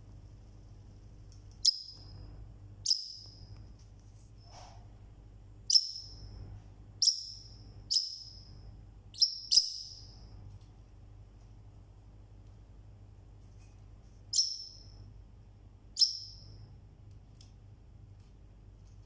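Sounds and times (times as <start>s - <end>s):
parrotlet high-pitched calls: 1.6s - 2.2s, 2.8s - 3.4s, 5.7s - 6.3s, 7.0s - 8.5s, 9.1s - 10.2s, 14.3s - 14.9s, 16.0s - 16.5s.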